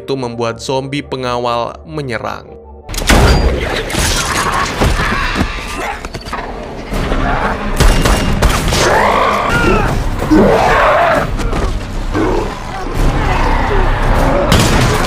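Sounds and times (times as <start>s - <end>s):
dramatic music: 0.0s - 15.0s
zombie snarling screams: 8.8s - 11.3s.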